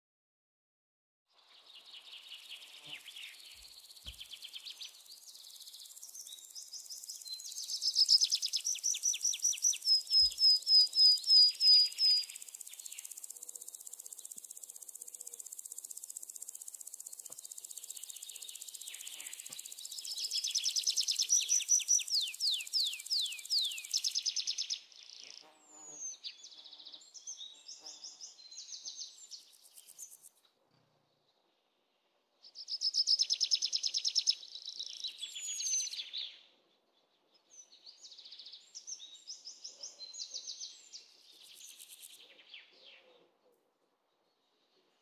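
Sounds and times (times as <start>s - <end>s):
insect hum: 1.5s - 26.1s, 27.1s - 30.4s, 40.9s - 42.3s.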